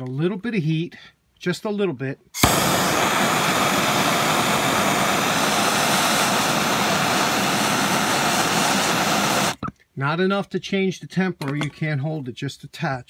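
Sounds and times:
gas torch hissing: 0:02.4 - 0:09.6.

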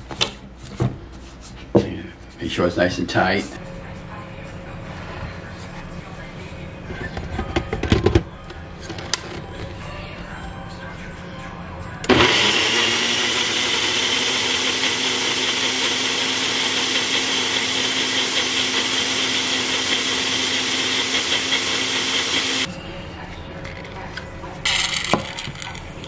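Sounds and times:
blender motor humming: 0:12.1 - 0:22.7.

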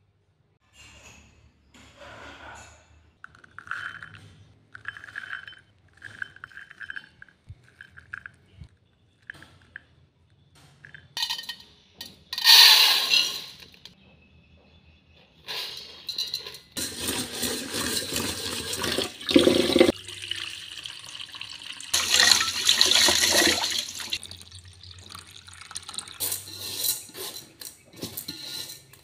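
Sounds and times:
beans rattling against a bowl: 0:03.3 - 0:08.6, 0:12.3 - 0:13.9, 0:15.5 - 0:20.9, 0:21.6 - 0:29.0
tap water pouring onto rice: 0:17.6 - 0:26.2.

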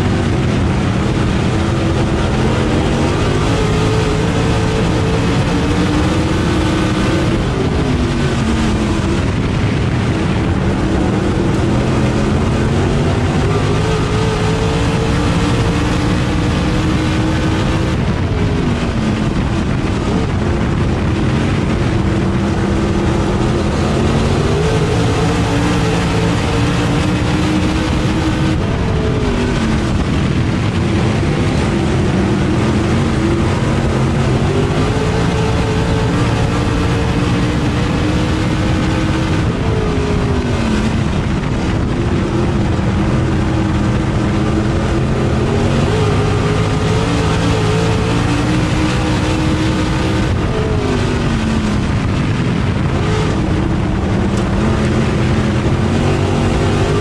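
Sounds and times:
racing engine at full throttle: 0:00.0 - 0:57.0
tyre and wind noise: 0:00.0 - 0:57.0.

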